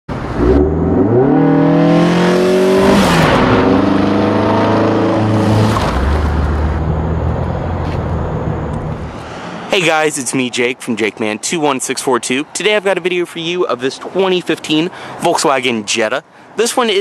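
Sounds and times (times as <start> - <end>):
car engine revving: 0.1 - 9.4.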